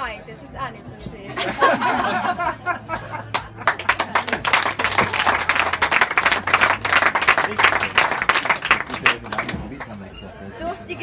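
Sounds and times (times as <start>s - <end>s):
audience clapping: 3.3s - 10.0s.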